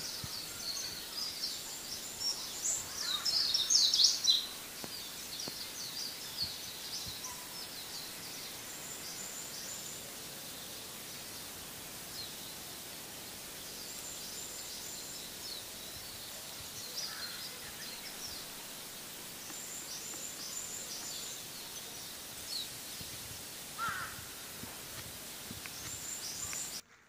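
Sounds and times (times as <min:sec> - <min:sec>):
small birds chirping: 0:00.0 - 0:26.8
outdoor ambience hiss: 0:00.0 - 0:27.0.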